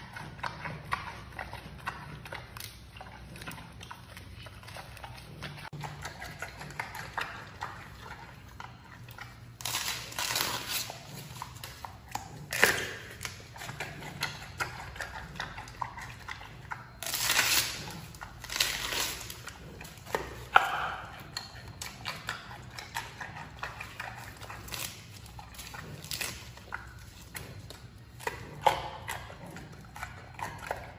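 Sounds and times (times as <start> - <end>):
panda chewing bamboo: 0.0 - 30.9.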